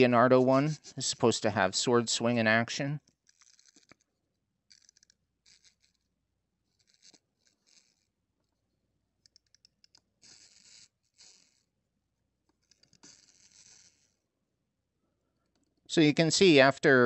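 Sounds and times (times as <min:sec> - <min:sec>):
plastic toy rustling: 0:03.0 - 0:08.6, 0:10.2 - 0:11.7
wind-up toy clicking: 0:03.2 - 0:04.0, 0:04.7 - 0:06.1, 0:06.7 - 0:08.1, 0:09.2 - 0:11.7, 0:12.6 - 0:14.2.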